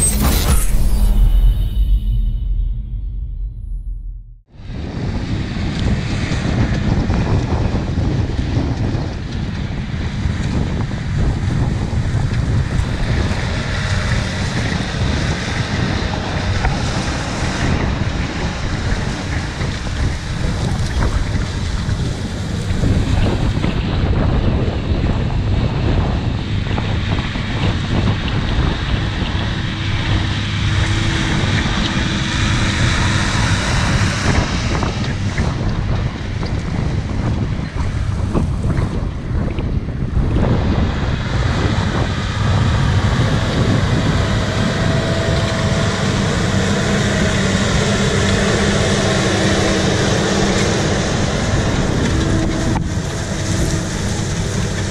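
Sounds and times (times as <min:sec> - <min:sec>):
wind noise on microphone: 0:00.0 - 0:54.9
disc harrow cutting soil: 0:41.4 - 0:54.9
tractor engine under load: 0:42.4 - 0:54.9.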